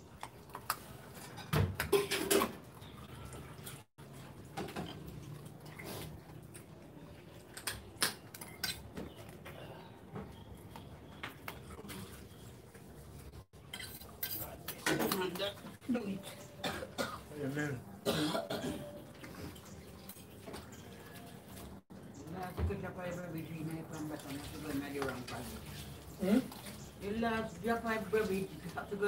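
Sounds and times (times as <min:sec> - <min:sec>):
dishes and pots knocking: 0:01.2 - 0:02.6.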